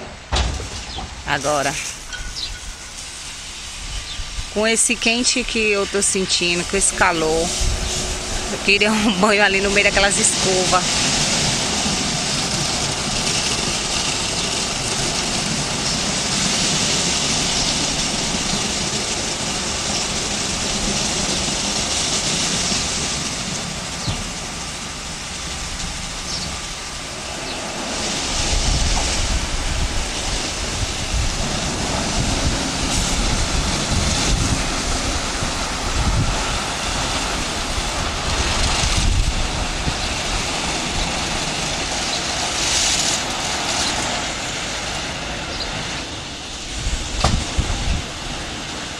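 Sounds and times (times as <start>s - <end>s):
heavy low rumble: 0.0s - 42.6s.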